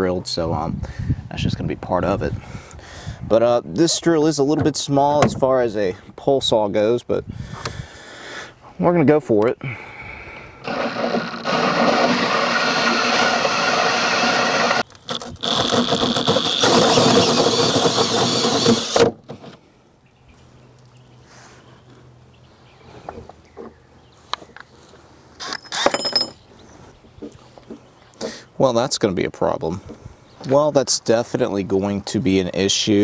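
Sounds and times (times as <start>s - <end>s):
drill cutting through aluminum: 10.6s - 19.1s.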